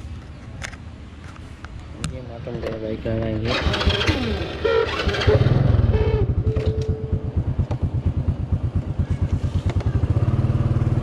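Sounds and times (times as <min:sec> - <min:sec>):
scooter engine idling: 0:03.4 - 0:11.0.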